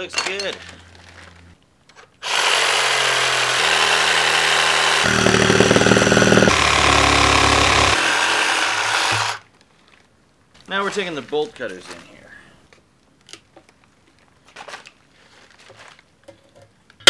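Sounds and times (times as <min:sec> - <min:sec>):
reciprocating saw cutting tyre: 0:02.2 - 0:09.4.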